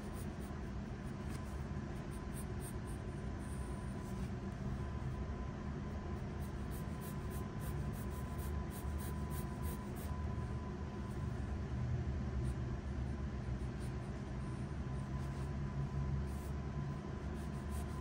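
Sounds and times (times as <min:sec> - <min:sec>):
pencil scratching on paper: 0:00.0 - 0:04.4, 0:06.2 - 0:10.2, 0:16.3 - 0:18.0
steady low hum: 0:00.0 - 0:18.0.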